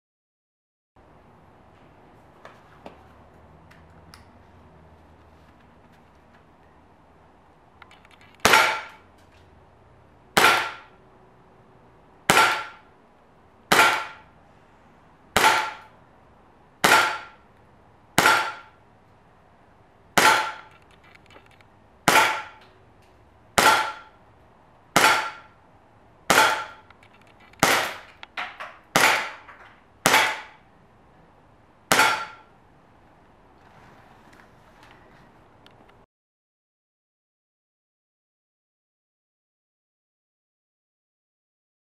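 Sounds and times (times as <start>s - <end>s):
airsoft pistol shots: 8.4s - 9.0s, 10.4s - 11.0s, 12.3s - 12.9s, 13.7s - 14.3s, 15.4s - 15.9s, 16.8s - 17.4s, 18.2s - 18.8s, 20.2s - 20.7s, 22.0s - 22.6s, 23.6s - 24.2s, 25.0s - 25.6s, 26.3s - 26.9s, 27.6s - 28.1s, 28.9s - 30.6s, 31.9s - 32.5s.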